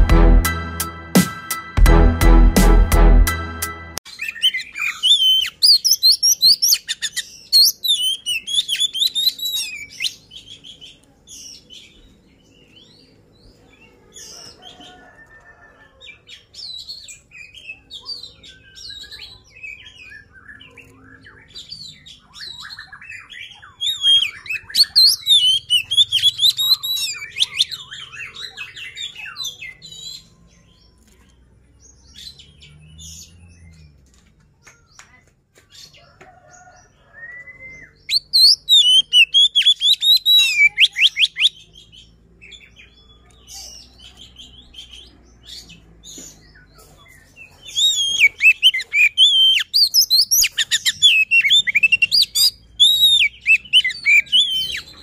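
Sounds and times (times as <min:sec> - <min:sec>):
bird singing whistles and chatter: 0:04.1 - 0:11.6, 0:16.6 - 0:30.4, 0:37.1 - 0:45.7, 0:46.3 - 0:55.0.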